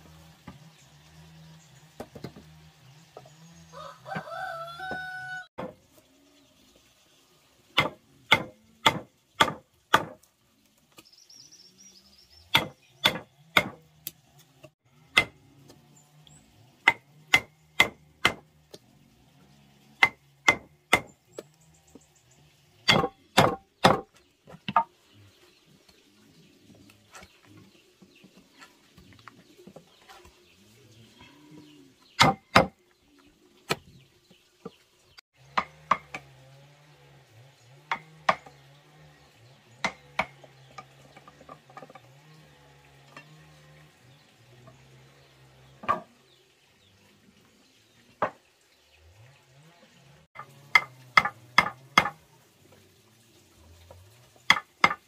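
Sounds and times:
mallet striking chisel: 7.8 - 10.2, 12.5 - 13.8, 15.1 - 15.4, 16.9 - 18.4, 20.0 - 21.1, 22.9 - 24.1, 32.2 - 32.7, 50.4 - 52.2.

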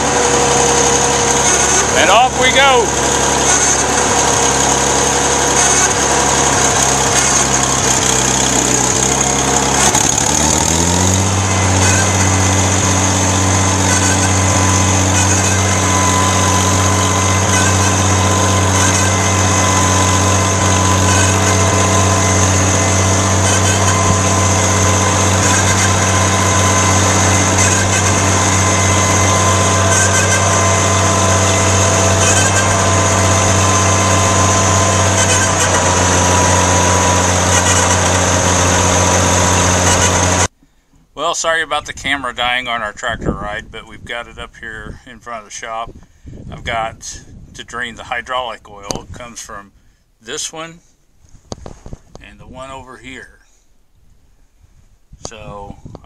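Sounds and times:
tractor engine running: 0.0 - 44.6.

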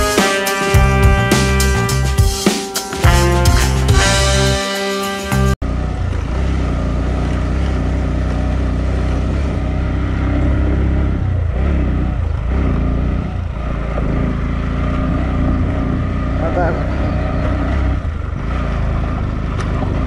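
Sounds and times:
motorcycle engine running: 5.2 - 20.0.

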